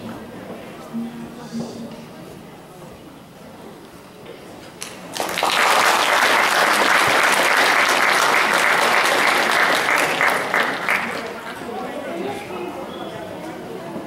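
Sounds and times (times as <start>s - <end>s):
audience applauding: 4.8s - 11.6s.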